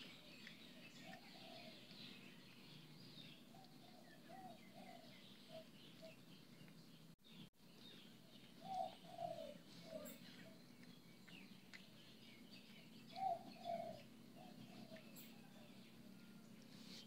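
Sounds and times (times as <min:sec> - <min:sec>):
small birds chirping: 0:00.0 - 0:17.0
dove cooing: 0:01.0 - 0:01.9, 0:03.5 - 0:05.7, 0:08.6 - 0:10.6, 0:13.1 - 0:15.6.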